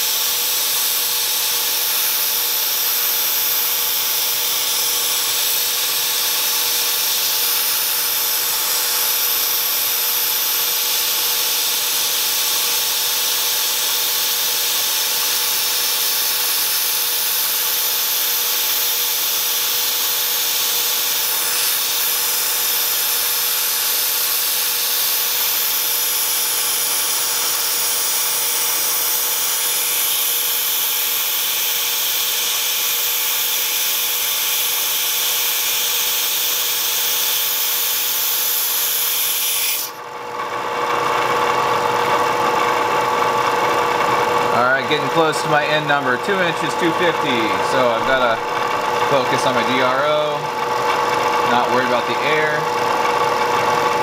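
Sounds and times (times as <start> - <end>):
compressed air hissing: 0.0 - 12.4, 13.2 - 37.8
milling machine cutting steel: 0.0 - 40.0.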